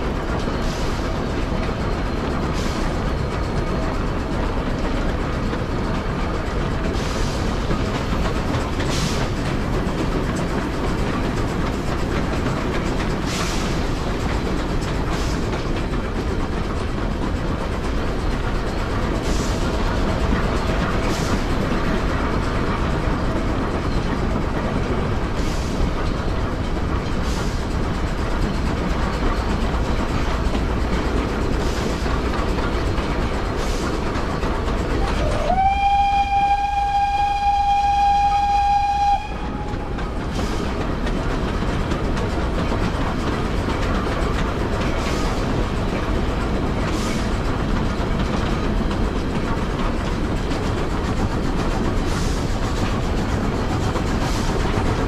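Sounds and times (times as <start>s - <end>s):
rail clicks: 0.0s - 55.0s
steam train running: 0.0s - 55.0s
steam whistle blast: 35.0s - 39.8s.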